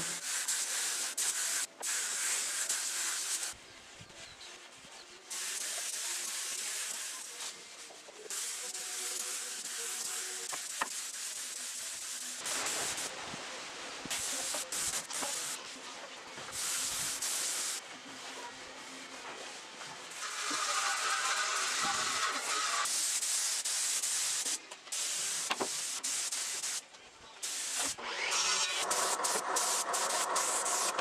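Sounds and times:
spray gun hissing: 0.0 - 3.6, 5.3 - 13.1, 14.1 - 15.6, 16.5 - 17.8, 20.1 - 26.8, 27.4 - 28.0, 28.8 - 31.0.

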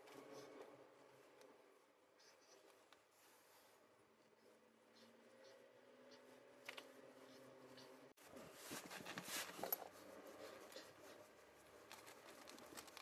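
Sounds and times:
scraping and rubbing: 6.2 - 13.0.

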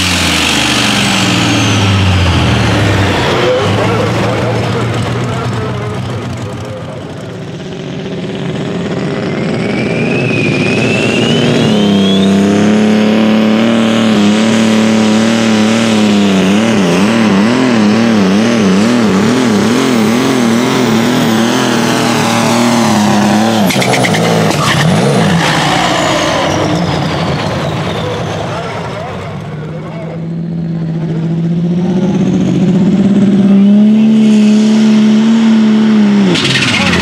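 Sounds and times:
tractor diesel engine at full throttle: 0.0 - 37.0
turbo whine: 5.4 - 14.8.

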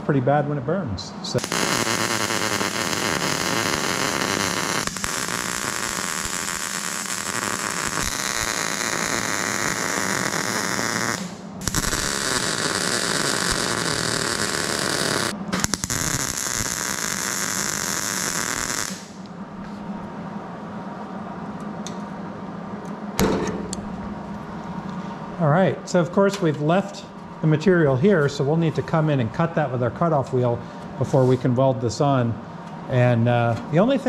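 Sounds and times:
welder frying hiss: 1.4 - 19.2.

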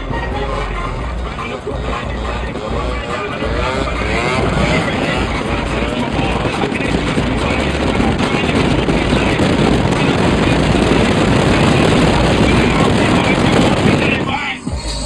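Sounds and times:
low wind buffeting: 0.0 - 15.0
wind and road noise: 0.0 - 15.0.

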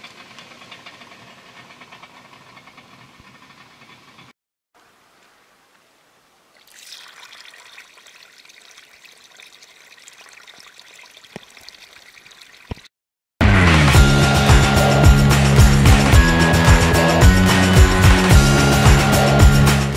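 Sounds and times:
water pouring onto gravel: 6.5 - 12.9.

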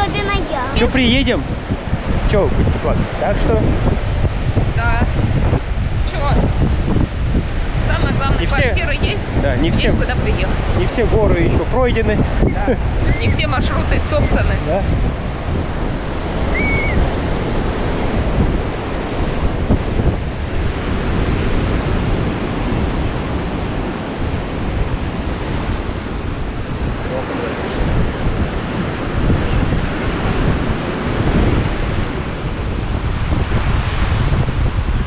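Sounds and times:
surf washing onto sand: 0.0 - 35.0
wind buffeting microphone: 0.0 - 35.0.

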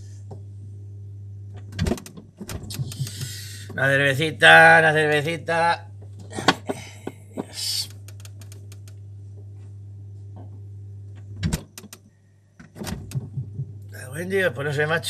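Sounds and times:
fridge low hum: 0.0 - 15.0
short hiss: 2.8 - 3.7
loud knocks: 12.8 - 13.8.

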